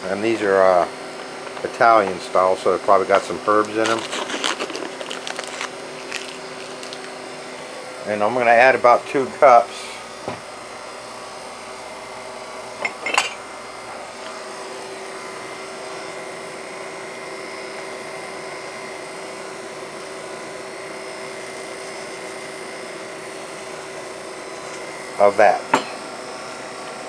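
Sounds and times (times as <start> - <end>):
machine hum: 0.0 - 27.0.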